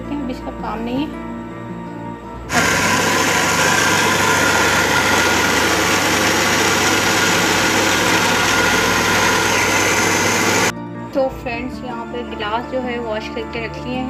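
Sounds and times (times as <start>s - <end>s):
blender running at high speed: 2.5s - 10.7s.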